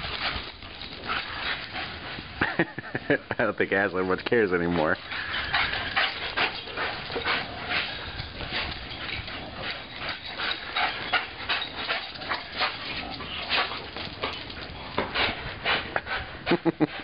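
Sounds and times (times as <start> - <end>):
dog panting hard: 4.7 - 17.0.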